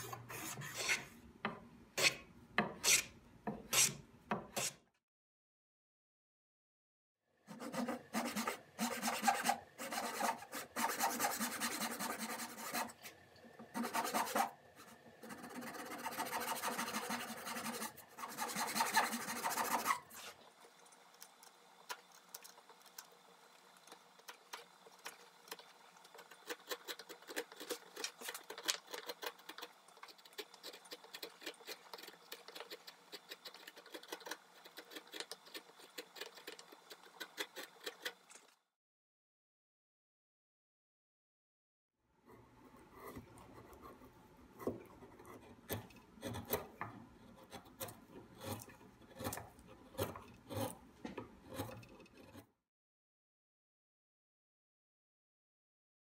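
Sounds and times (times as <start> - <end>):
carving gouge paring wood: 7.5 - 13.0, 13.7 - 20.3, 24.4 - 38.2, 42.8 - 52.4
rasp scraping wood: 7.5 - 13.0, 13.7 - 20.4, 44.6 - 52.5.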